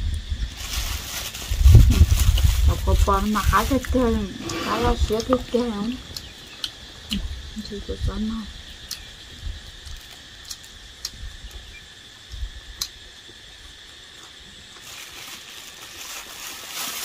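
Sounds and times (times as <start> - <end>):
high-pitched insect drone: 0.0 - 17.0.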